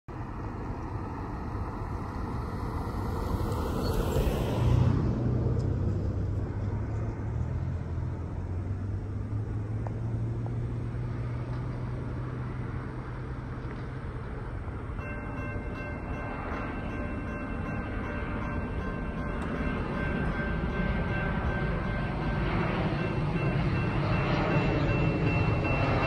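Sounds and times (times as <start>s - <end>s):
car passing by: 0.2s - 14.8s.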